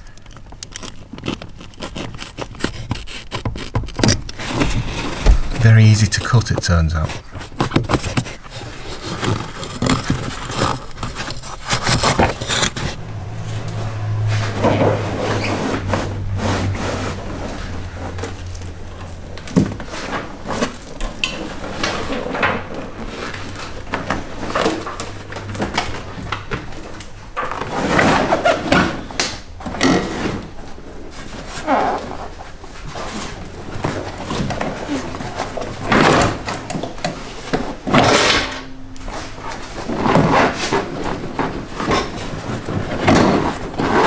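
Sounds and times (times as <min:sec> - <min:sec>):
carpet scraping and rustling: 0:00.0 - 0:44.0
low steady hum: 0:04.3 - 0:27.6.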